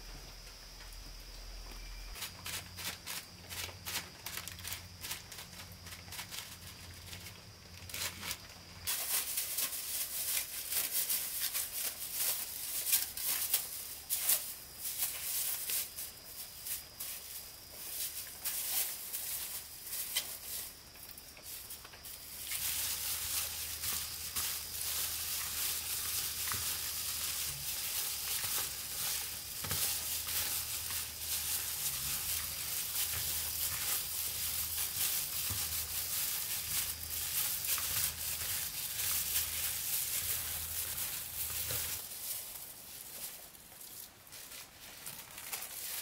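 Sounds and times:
filling mixed in plastic bowl: 0:22.2 - 0:42.5.

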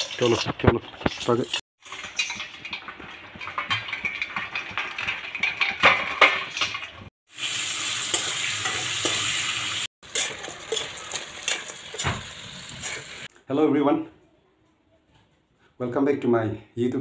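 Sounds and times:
metal spoon stirring in wok: 0:00.0 - 0:07.1, 0:08.0 - 0:13.3
steel bowls and plates clinking: 0:00.0 - 0:07.1, 0:08.0 - 0:13.3
onions sizzling in hot oil: 0:00.0 - 0:13.3.

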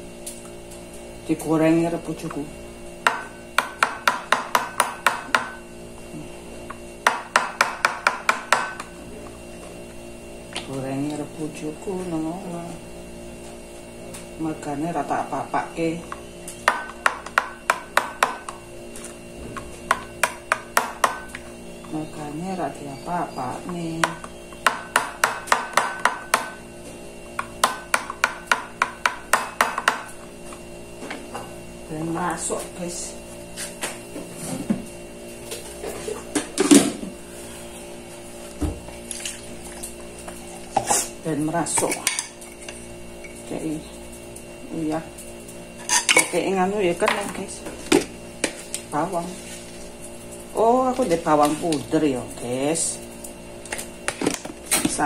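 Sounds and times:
knife chopping on countertop: 0:03.0 - 0:05.6, 0:07.0 - 0:08.9, 0:16.6 - 0:18.6, 0:19.5 - 0:21.4, 0:24.0 - 0:26.6, 0:27.4 - 0:30.1.

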